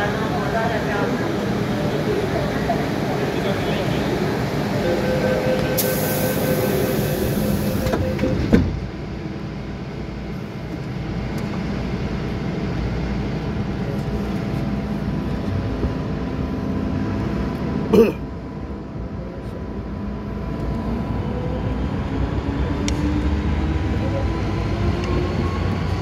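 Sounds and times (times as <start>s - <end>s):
electric train hum and rumble: 0.0s - 26.0s
train doors shutting thud: 7.0s - 8.9s.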